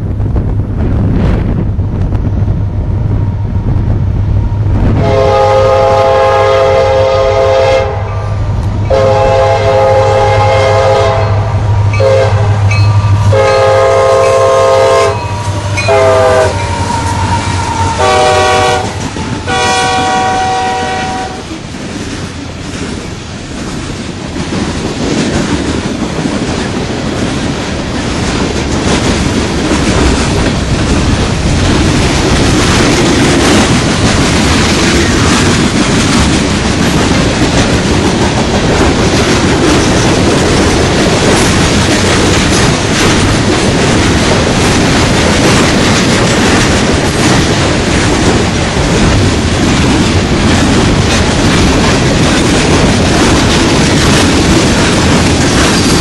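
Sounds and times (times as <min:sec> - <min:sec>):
locomotive engine drone: 0:00.0 - 0:23.8
locomotive air horn blasts: 0:05.0 - 0:21.5
freight cars rumbling and clattering: 0:08.2 - 0:56.0.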